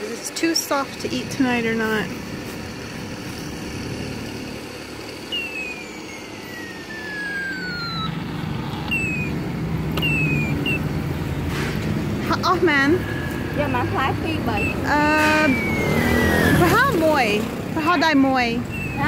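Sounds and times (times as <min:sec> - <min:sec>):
traffic engine hum: 0:00.0 - 0:19.0
high whine falling in pitch: 0:04.4 - 0:11.2, 0:14.5 - 0:17.9.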